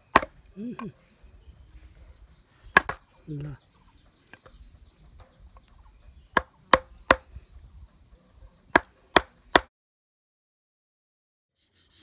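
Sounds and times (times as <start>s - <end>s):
mallet striking chisel into wood: 8.8s - 9.7s.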